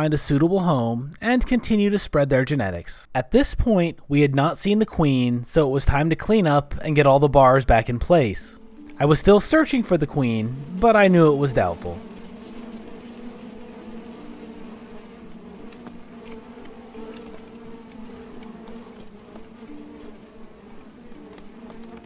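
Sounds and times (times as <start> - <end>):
bees buzzing: 8.1 - 22.0.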